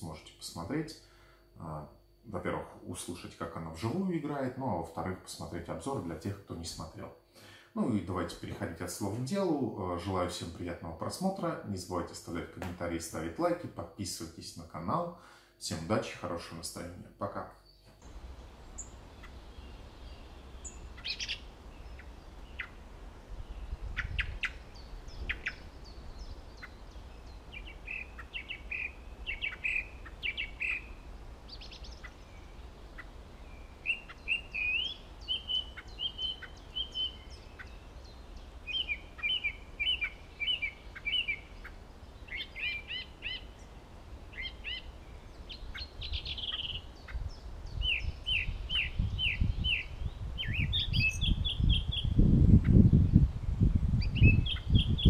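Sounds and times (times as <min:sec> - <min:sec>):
song thrush singing: 0:15.7 - 0:55.0.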